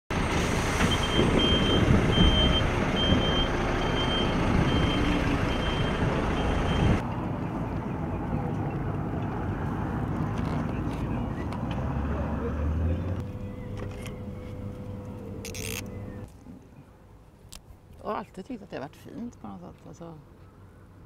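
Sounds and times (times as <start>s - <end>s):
outdoor background: 0.1s - 21.0s
reversing alarm beeping: 0.8s - 7.0s.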